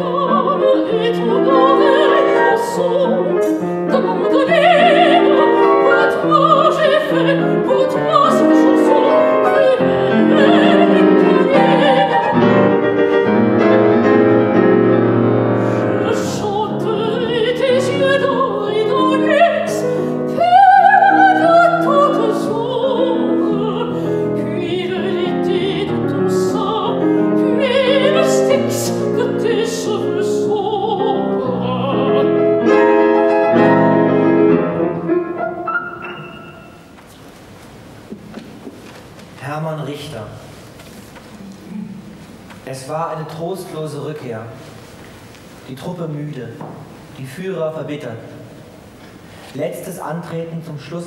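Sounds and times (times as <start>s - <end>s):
woman singing with vibrato: 0.0s - 13.1s, 15.5s - 37.0s
grand piano: 0.0s - 51.0s.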